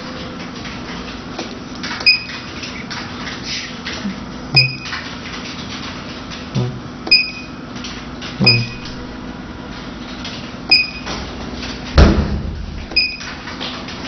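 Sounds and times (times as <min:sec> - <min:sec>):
low machine hum: 0:03.8 - 0:05.3, 0:06.1 - 0:11.2
short high touchscreen beeps: 0:04.6 - 0:05.0, 0:08.4 - 0:09.0.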